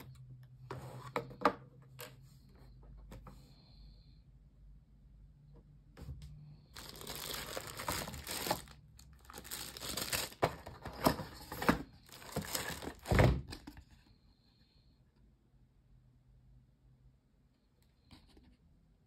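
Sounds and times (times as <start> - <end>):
cardboard rustling and crinkling: 6.8 - 13.9.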